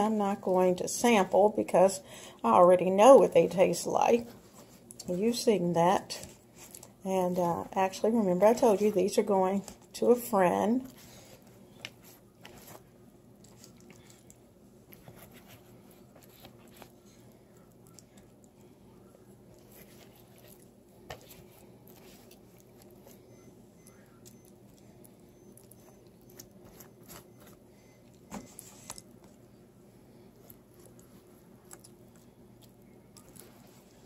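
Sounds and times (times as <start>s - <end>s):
low steady hum: 0.0s - 34.0s
pastry brush soft squishing: 10.8s - 34.0s.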